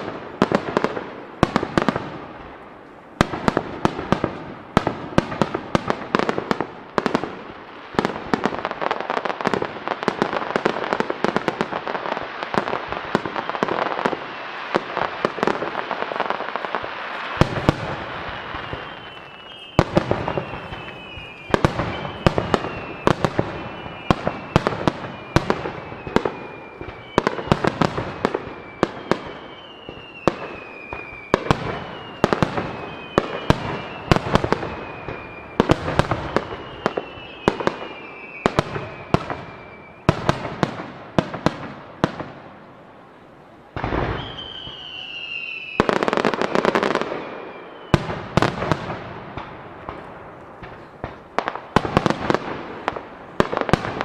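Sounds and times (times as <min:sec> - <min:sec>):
fireworks bursts crackling: 0:00.0 - 0:54.0
sharp firework bangs: 0:03.2 - 0:42.4, 0:47.9 - 0:54.0
falling firework whistles: 0:11.8 - 0:42.4, 0:43.7 - 0:50.0.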